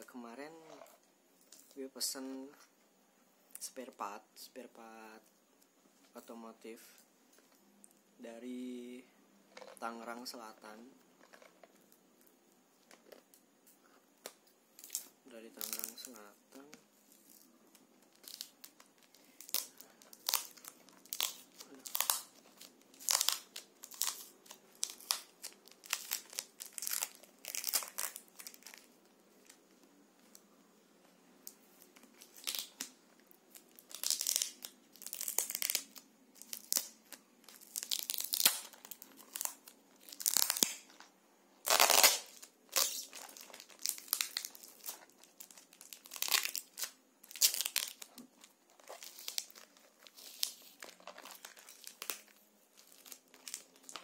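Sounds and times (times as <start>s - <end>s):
plastic wrapping tearing and crinkling: 14.2s - 29.7s, 31.4s - 54.0s.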